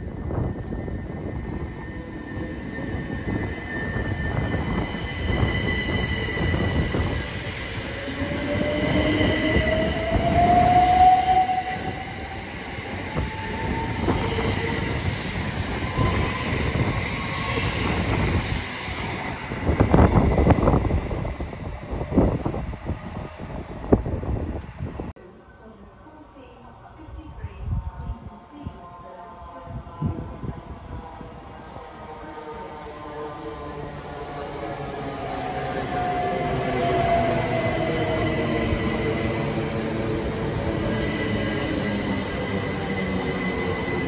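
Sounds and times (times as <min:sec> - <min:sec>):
train wheels rumbling on rail: 0:00.0 - 0:25.1
train running in: 0:00.0 - 0:44.0.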